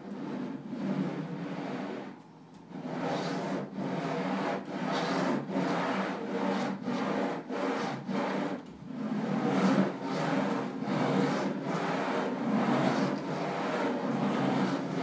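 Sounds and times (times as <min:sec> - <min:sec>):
pens scraping across paper: 0:00.0 - 0:15.0.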